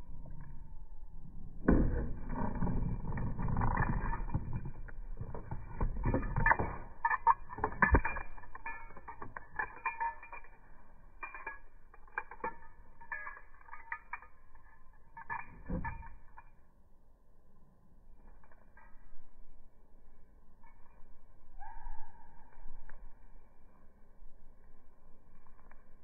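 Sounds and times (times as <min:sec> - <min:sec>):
plastic and keys rattling: 0:03.6 - 0:16.5.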